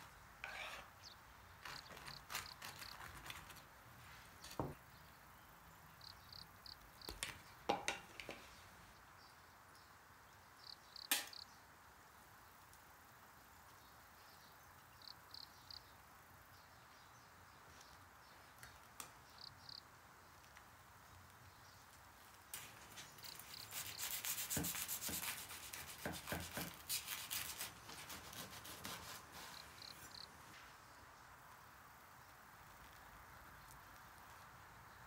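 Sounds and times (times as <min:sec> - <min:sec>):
knife sawing through toast: 0:00.4 - 0:00.9, 0:01.6 - 0:03.6, 0:23.2 - 0:29.6.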